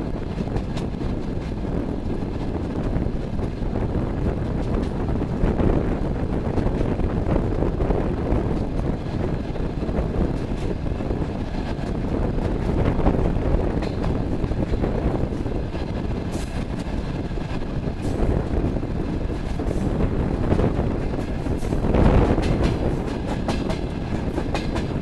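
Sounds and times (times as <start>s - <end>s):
train wheels rumbling on rails: 0.0s - 25.0s
wind on microphone: 0.0s - 25.0s.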